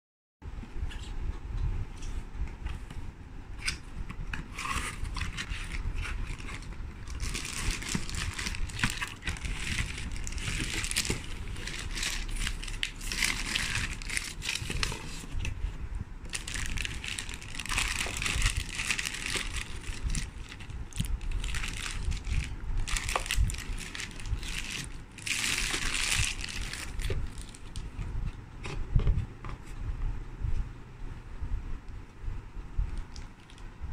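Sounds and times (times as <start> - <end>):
packaging crinkling and rustling: 4.4 - 15.6, 16.3 - 28.0
low handling rumble: 4.9 - 33.9.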